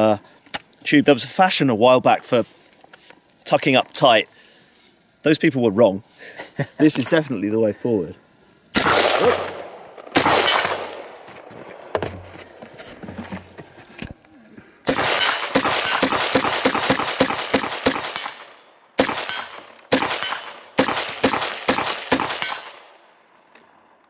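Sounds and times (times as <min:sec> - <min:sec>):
rifle shots with echo: 0:08.8 - 0:11.2, 0:14.9 - 0:23.0.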